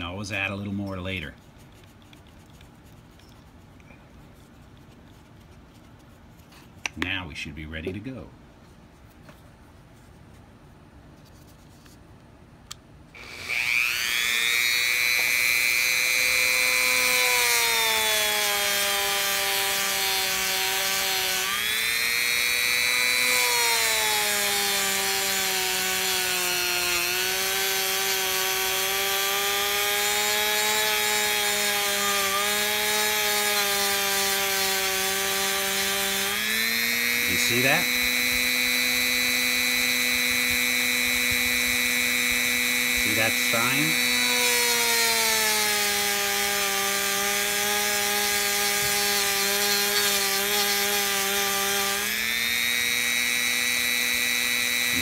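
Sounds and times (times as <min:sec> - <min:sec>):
rotary tool whining: 0:13.2 - 0:55.0.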